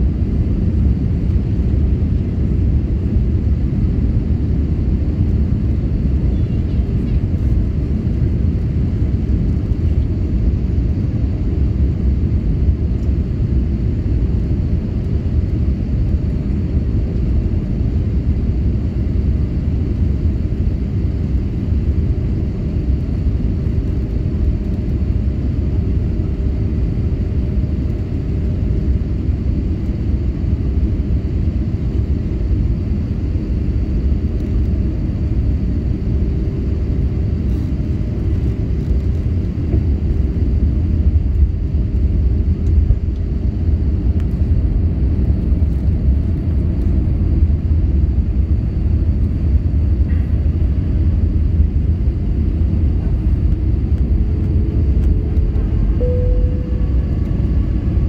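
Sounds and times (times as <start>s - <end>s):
airplane cabin rumble: 0.0s - 58.0s
faint whining tones: 52.8s - 58.0s.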